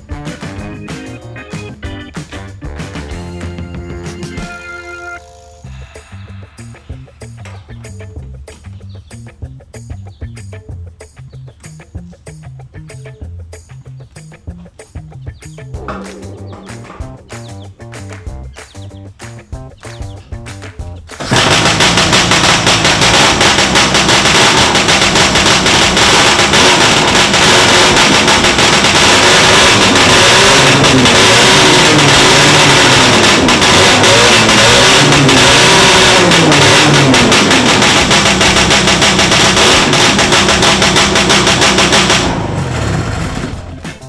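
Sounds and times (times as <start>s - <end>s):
snowmobile engine revving: 21.2s - 43.8s.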